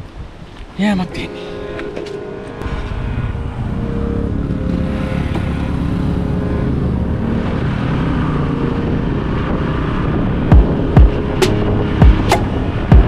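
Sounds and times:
motorcycle engine running: 0:10.5 - 0:12.3.

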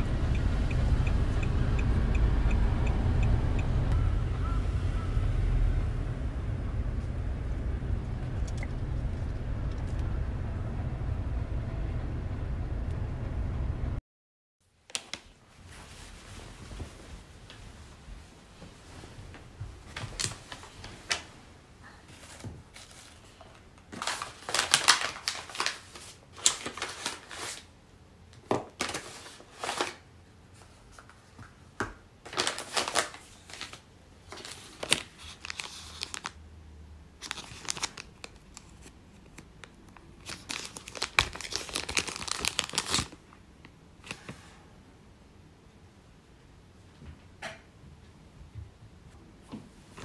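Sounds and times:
packaging crinkling and rustling: 0:14.9 - 0:17.0, 0:19.9 - 0:21.3, 0:22.1 - 0:27.8, 0:28.4 - 0:31.3, 0:32.2 - 0:36.4, 0:37.2 - 0:43.4.

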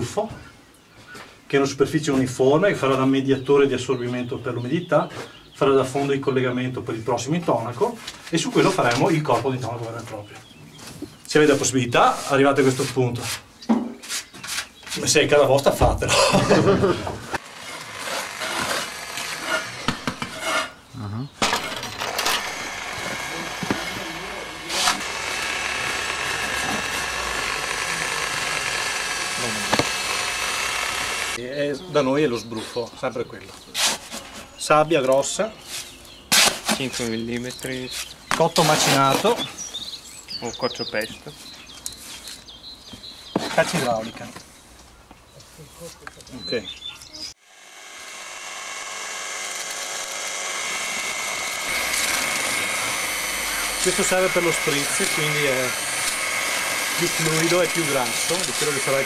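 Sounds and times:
electric drill mixing mortar: 0:16.4 - 0:20.7, 0:21.4 - 0:31.4, 0:47.3 - 0:59.0
mechanical running noise: 0:21.5 - 0:31.4, 0:47.5 - 0:59.0.

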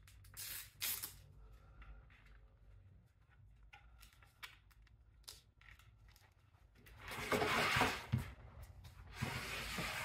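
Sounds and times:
velcro strap clicks: 0:00.0 - 0:01.2.

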